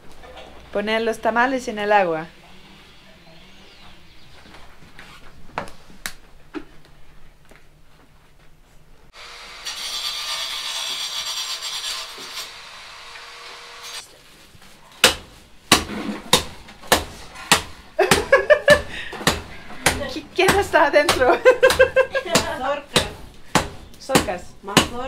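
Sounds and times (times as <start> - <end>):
sharp knocks: 15.0 - 18.3.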